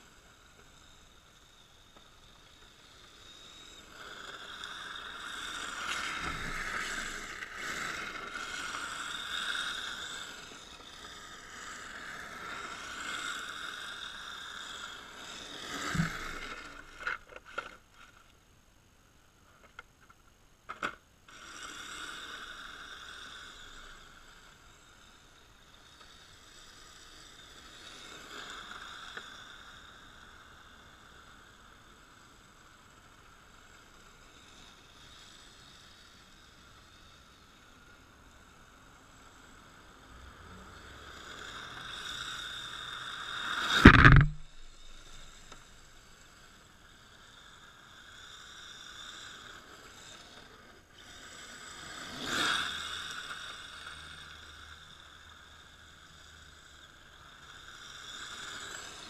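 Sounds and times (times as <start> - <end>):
rc car motor and gear whine: 0.0 - 59.0
sharp knocks: 43.8 - 44.6.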